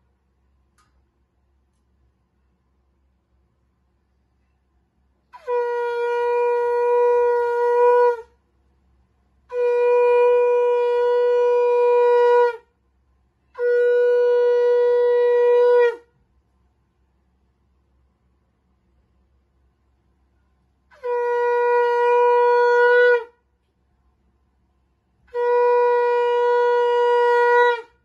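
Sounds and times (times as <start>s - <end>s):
conch shell blasts: 5.3s - 8.3s.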